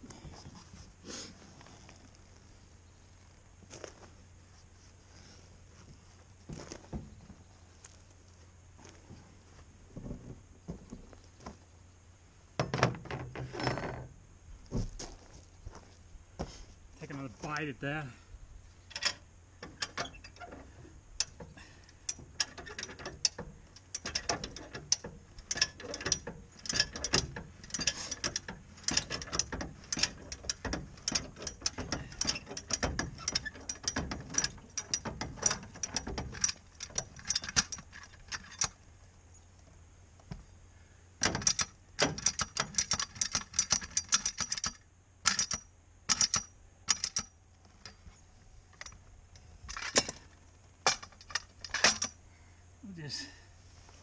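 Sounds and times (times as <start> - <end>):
jack ratcheting metal clicks: 18.9 - 38.8, 41.2 - 48.0, 50.8 - 52.2.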